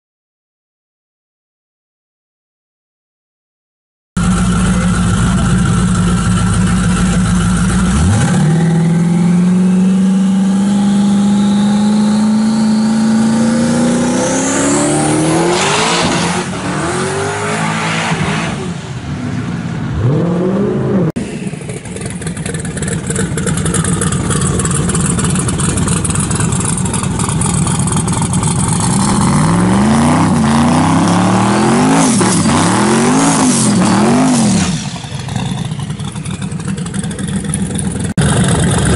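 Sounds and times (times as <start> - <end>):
engine revving in blips: 4.2 - 18.8, 19.8 - 27.0, 28.8 - 36.3
high turbo whine: 4.2 - 38.9
truck engine at full throttle: 4.2 - 38.9.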